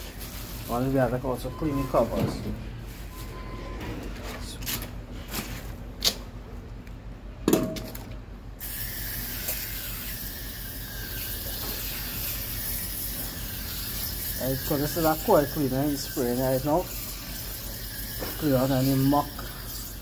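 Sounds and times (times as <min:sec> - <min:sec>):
spray hiss: 0:08.6 - 0:20.0.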